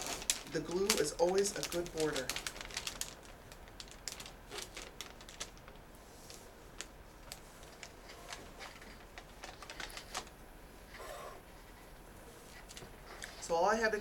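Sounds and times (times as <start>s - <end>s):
peel pouch crinkling: 0.0s - 10.4s.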